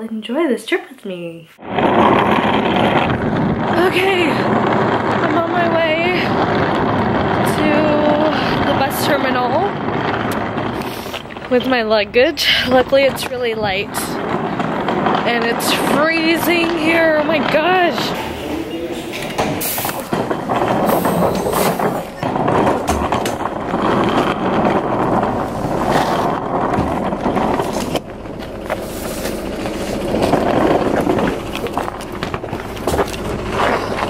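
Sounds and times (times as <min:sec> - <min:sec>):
buses rumbling: 0:01.6 - 0:34.0
indistinct voices: 0:03.6 - 0:06.6, 0:07.4 - 0:23.9.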